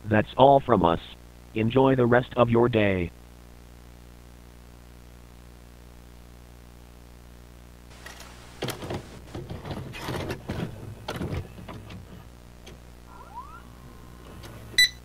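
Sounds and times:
low hum: 7.9 - 15.0.

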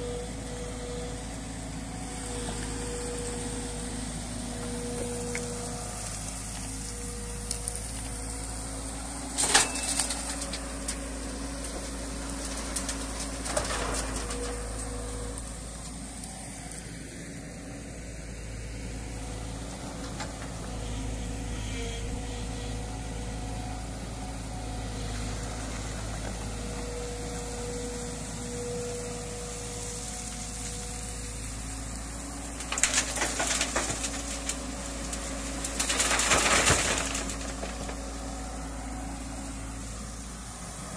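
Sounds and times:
excavator diesel engine running: 0.0 - 40.9
rocks crashing into steel truck bed: 12.2 - 15.0, 32.6 - 38.2.

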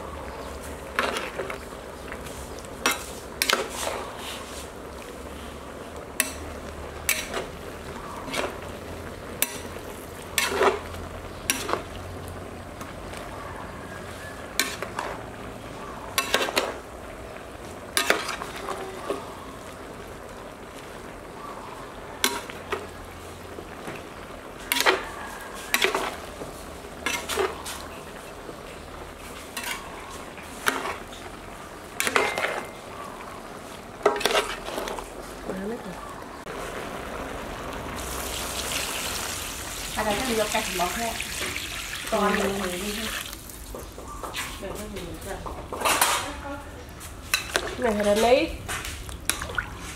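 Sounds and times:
stir-fry sizzling: 0.0 - 49.9
metal ladle scraping a pot: 6.2 - 8.7, 9.4 - 11.9, 24.6 - 28.3, 29.2 - 31.2, 32.0 - 32.8, 34.0 - 35.1.

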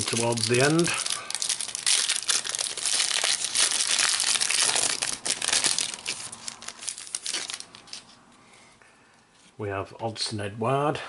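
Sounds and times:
wrapper being torn and crinkled: 0.0 - 8.1.

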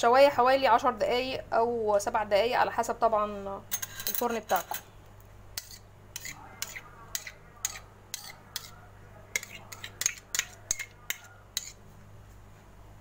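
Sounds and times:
metal ladle clinking on metal tray: 3.7 - 4.8.

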